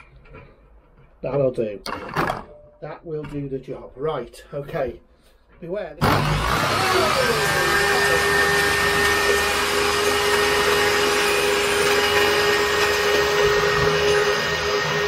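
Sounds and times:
saw ripping timber: 6.0 - 15.0
table saw whining: 6.0 - 15.0.

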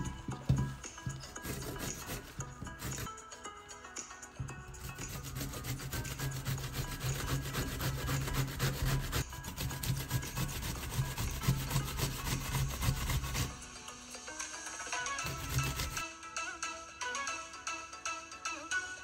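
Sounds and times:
vegetable grated on metal grater: 1.4 - 3.1, 4.8 - 13.6, 15.2 - 16.0.

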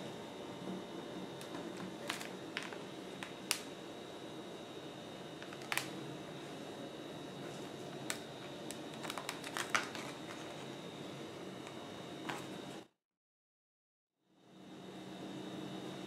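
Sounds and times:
plastic blister pack clicks and crinkles: 2.0 - 3.7, 5.4 - 6.0, 8.0 - 10.6.

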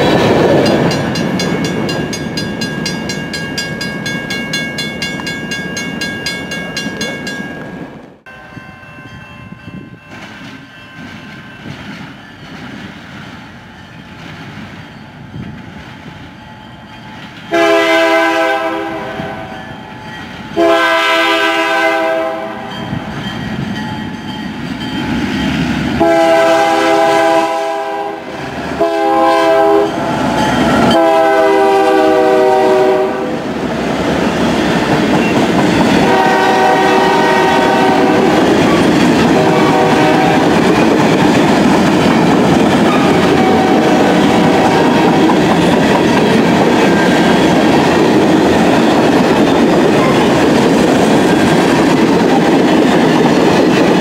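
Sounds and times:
train wheels clacking on rails: 0.0 - 7.7, 9.8 - 18.1, 33.6 - 54.0
train air horn blasts: 17.5 - 19.6, 20.6 - 22.8, 26.0 - 30.0, 30.8 - 33.4, 36.0 - 38.5, 39.3 - 40.6, 42.9 - 45.2.

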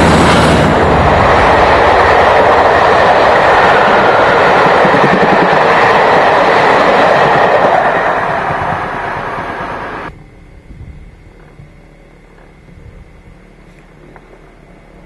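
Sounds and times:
train wheels rushing on rails: 0.0 - 10.1.

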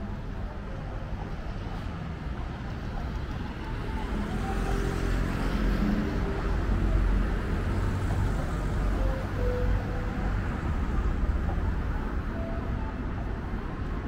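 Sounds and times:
vehicles passing: 0.0 - 14.0.

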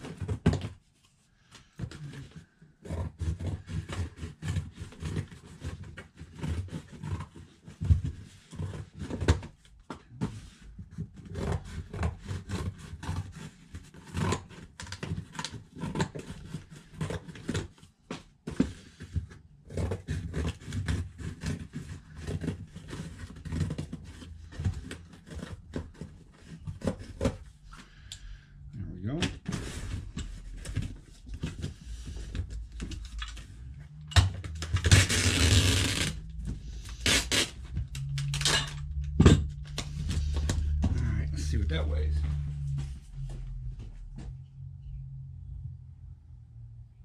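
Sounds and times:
scissors cutting cardboard: 1.8 - 27.9, 29.4 - 38.5
low uneven rumble: 27.9 - 47.0.

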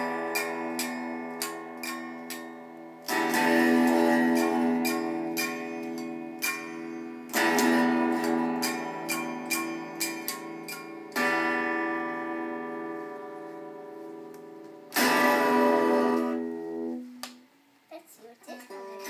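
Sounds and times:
light plucks and taps on strings: 0.0 - 11.7
electric guitar strummed hard: 0.0 - 13.0, 14.9 - 16.9.

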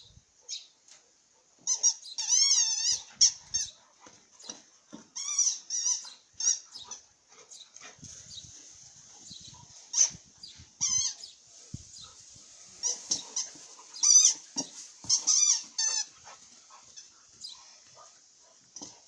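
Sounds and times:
dog toy squeaking: 1.7 - 3.7, 5.2 - 6.8, 10.8 - 11.2, 12.8 - 16.1.

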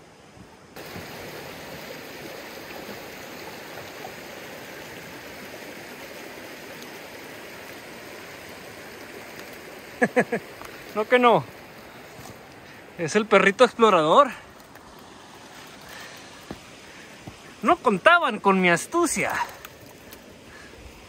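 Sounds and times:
creek water rushing over rocks: 0.0 - 21.0.

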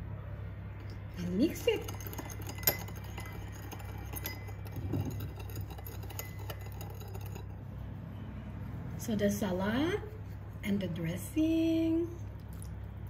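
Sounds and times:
steady low hum: 0.0 - 13.0
spoon clinking against bowl: 0.8 - 7.6
spoon stirring in ceramic bowl: 0.8 - 7.9.

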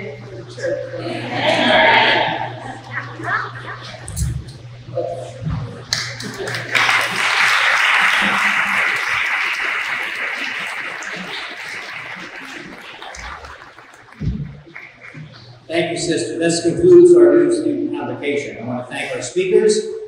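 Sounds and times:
audience applauding: 5.9 - 15.3.

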